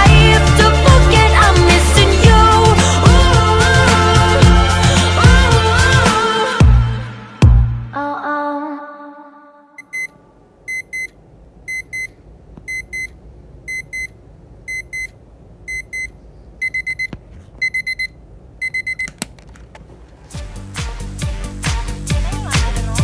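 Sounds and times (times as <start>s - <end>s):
alarm clock beeping: 9.8s - 10.1s, 10.7s - 11.1s, 13.7s - 14.1s, 15.7s - 19.1s.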